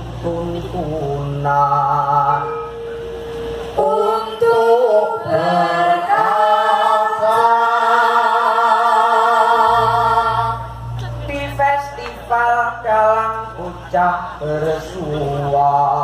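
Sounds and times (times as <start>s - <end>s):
low steady tone: 0.0s - 6.3s
group of voices singing: 3.8s - 16.0s.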